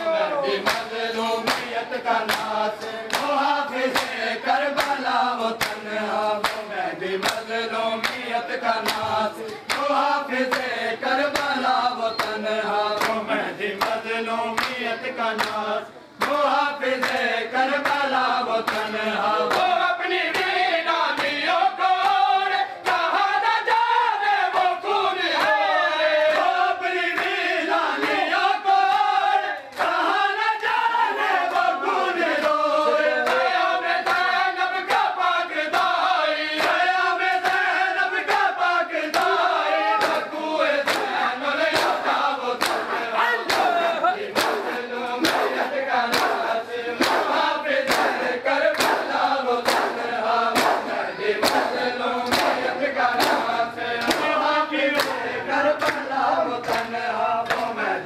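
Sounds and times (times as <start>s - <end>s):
men chanting together: 0.0s - 58.0s
hands slapping chests: 40.0s - 54.4s, 55.0s - 55.2s.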